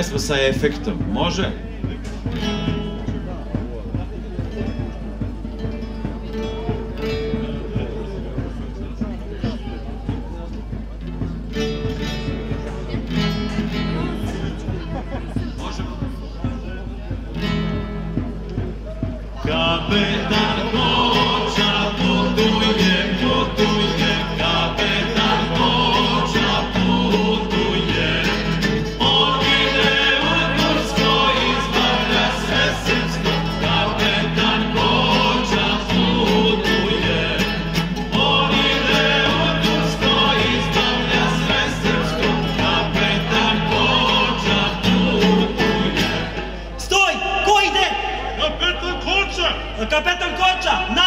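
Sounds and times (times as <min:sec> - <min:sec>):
acoustic guitar: 0:00.0 - 0:51.0
mixed choir singing: 0:19.4 - 0:46.8.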